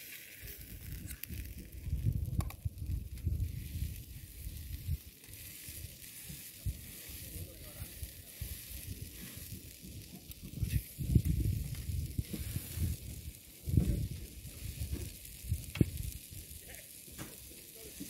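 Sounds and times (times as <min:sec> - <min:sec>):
gas camping stove hissing: 0:00.0 - 0:18.0
wind buffeting microphone: 0:00.6 - 0:05.0, 0:07.7 - 0:16.3.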